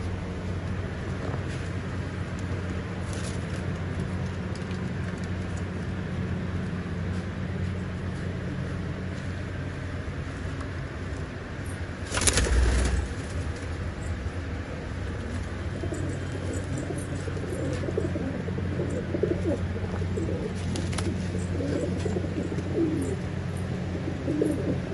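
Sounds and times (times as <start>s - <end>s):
pigeon wings flapping: 12.0s - 13.8s, 20.4s - 22.2s
pigeons cooing: 15.1s - 24.9s.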